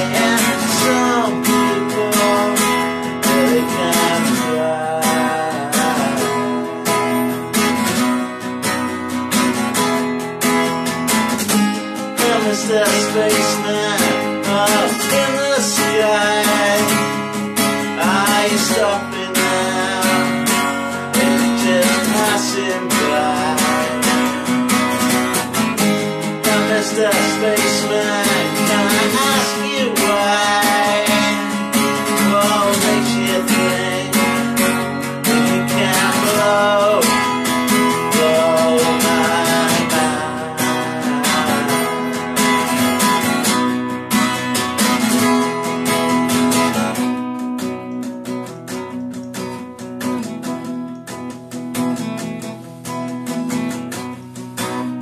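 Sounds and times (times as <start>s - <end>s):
man singing: 0.0s - 7.8s, 11.8s - 43.6s
acoustic guitar strumming: 0.0s - 55.0s.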